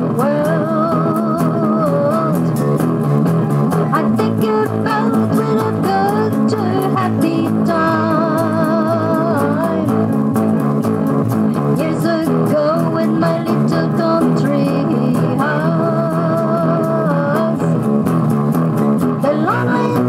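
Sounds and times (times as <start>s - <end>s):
woman singing: 0.0s - 2.6s, 3.9s - 10.0s, 11.8s - 17.9s, 19.2s - 20.0s
electric guitar and bass: 0.0s - 20.0s.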